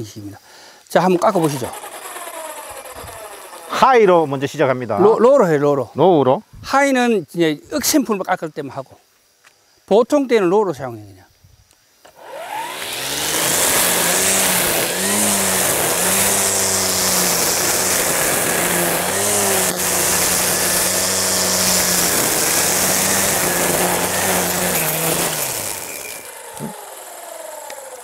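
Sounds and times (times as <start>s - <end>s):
motor winding down: 1.0s - 4.8s, 12.1s - 28.0s
electric brush cutter humming: 1.1s - 4.6s, 12.1s - 28.0s.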